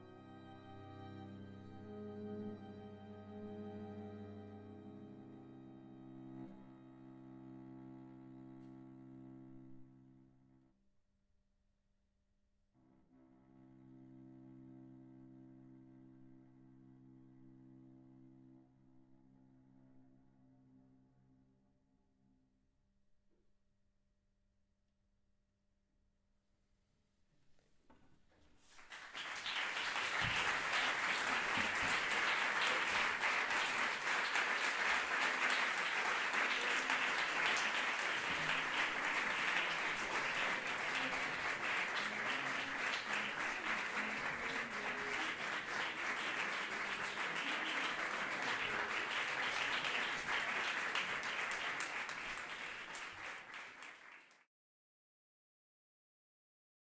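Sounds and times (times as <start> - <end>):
audience applauding: 28.6 - 54.5.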